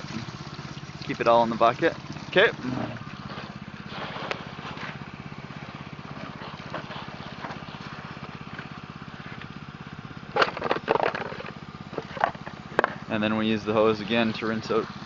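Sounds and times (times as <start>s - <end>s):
small engine putter: 0.0s - 15.0s.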